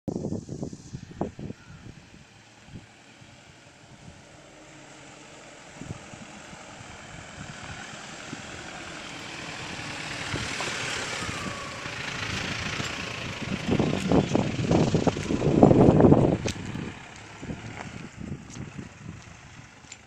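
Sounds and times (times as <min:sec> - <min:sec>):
car engine climbing: 0:00.1 - 0:20.0.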